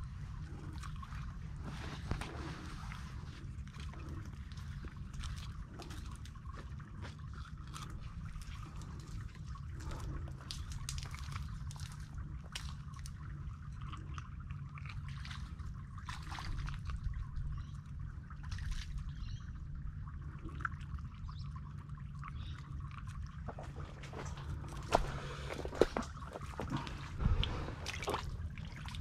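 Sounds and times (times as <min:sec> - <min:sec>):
low steady rumble: 0:00.0 - 0:29.0
water trickling and dripping: 0:00.0 - 0:29.0
small clicks and crackles: 0:00.5 - 0:17.7.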